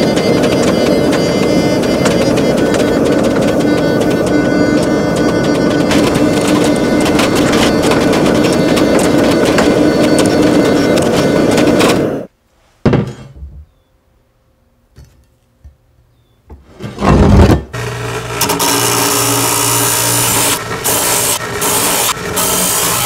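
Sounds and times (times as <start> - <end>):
hydraulic forging press running: 0.0 - 12.3, 17.0 - 23.0
motor humming steadily: 0.0 - 12.3, 17.7 - 23.0
knock: 12.8 - 13.7.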